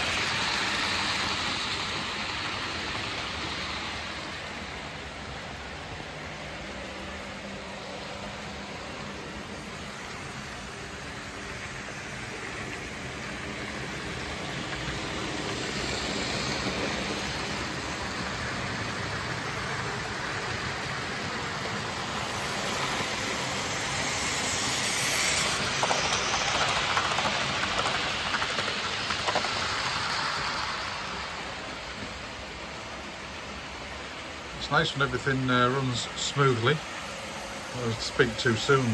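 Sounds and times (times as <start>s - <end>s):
model train whirring rumble: 0.0s - 38.9s
rapid clicks over rail joints: 24.9s - 31.2s.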